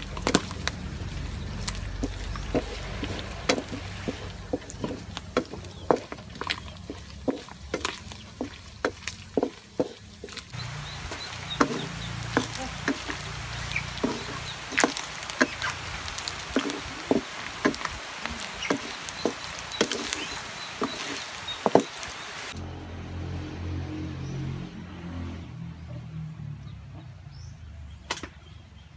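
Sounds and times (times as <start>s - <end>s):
meat sizzling in oil: 0.0s - 22.6s
wooden spatula clacking on wok: 2.0s - 20.2s.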